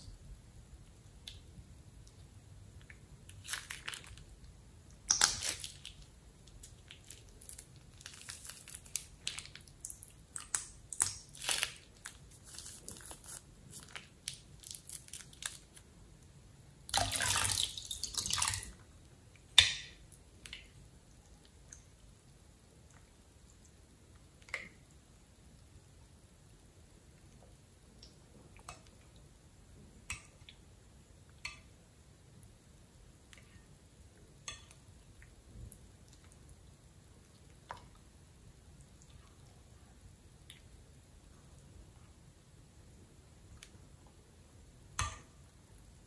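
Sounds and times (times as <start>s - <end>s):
wet slime squishes: 1.2s - 15.9s, 16.9s - 21.9s
plastic crinkling: 3.3s - 4.3s, 5.2s - 9.8s, 10.4s - 15.8s.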